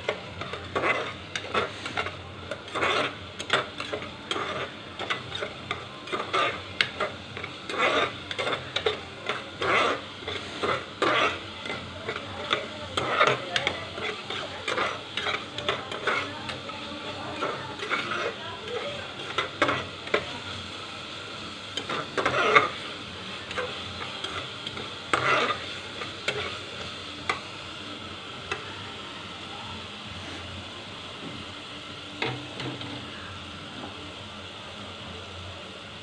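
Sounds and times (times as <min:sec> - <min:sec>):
masala sizzling in oil: 0:00.0 - 0:36.0
spatula scraping a pot: 0:00.1 - 0:20.2, 0:21.8 - 0:22.8, 0:23.4 - 0:26.6.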